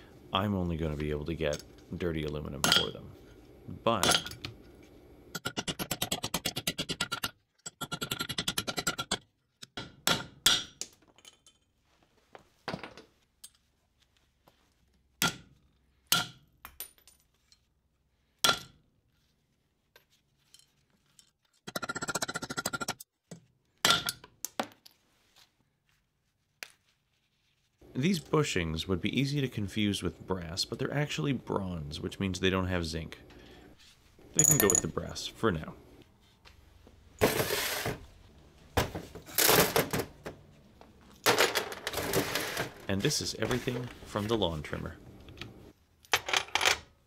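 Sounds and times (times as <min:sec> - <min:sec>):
metal clinks and thunks: 0:34.4 - 0:35.0.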